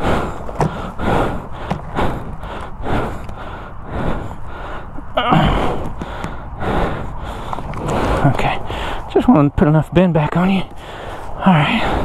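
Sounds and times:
man breathing heavily: 0.0s - 9.2s, 10.5s - 12.0s
man grunting: 5.1s - 5.8s.

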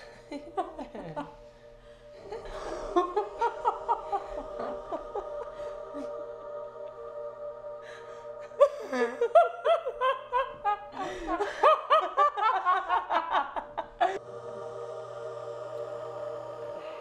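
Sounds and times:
women laughing hard: 0.0s - 1.4s, 2.2s - 6.2s, 8.5s - 14.2s
ambient music drone: 0.0s - 17.0s.

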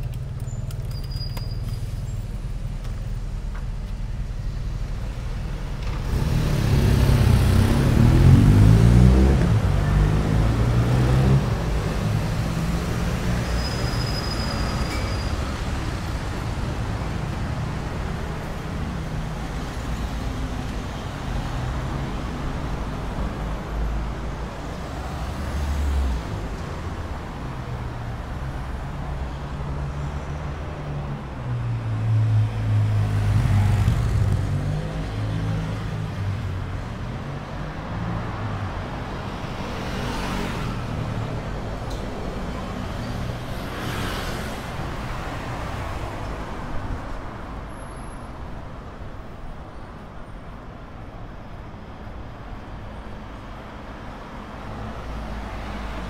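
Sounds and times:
road traffic passing: 0.0s - 56.0s
brief high squeal: 13.4s - 15.5s.

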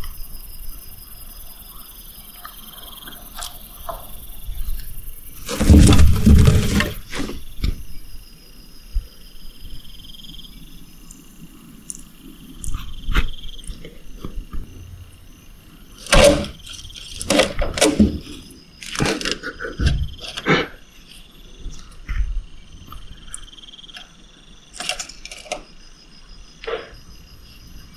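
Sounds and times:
loud rustle: 5.4s - 7.8s.

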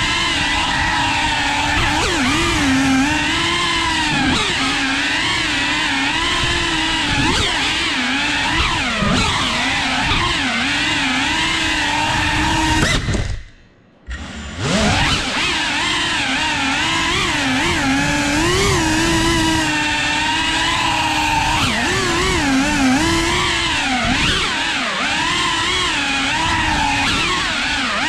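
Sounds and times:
drone motors and propellers whining: 16.4s - 28.0s.

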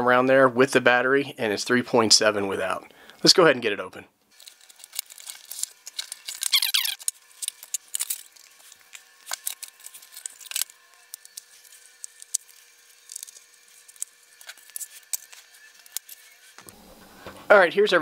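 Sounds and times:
cardboard squeaking against cardboard: 6.2s - 7.1s.

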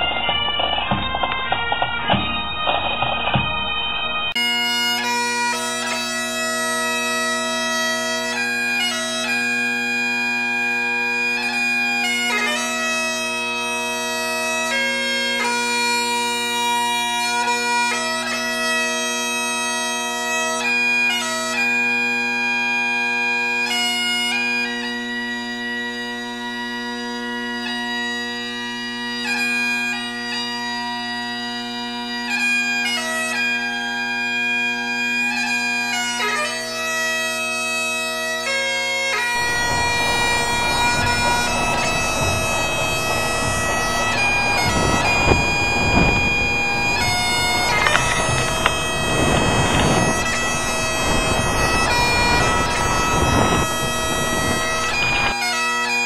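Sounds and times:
bagpipes playing slow tune: 0.0s - 56.0s
rough noisy rumble: 39.3s - 55.4s.

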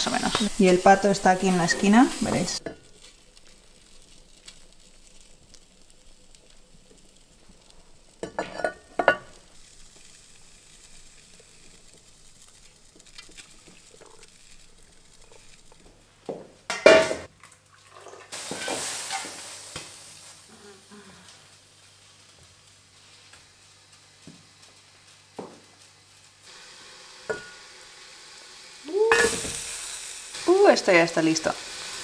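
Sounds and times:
food bubbling and sizzling: 0.0s - 32.0s
cookware clattering: 8.2s - 9.3s, 16.7s - 17.3s.

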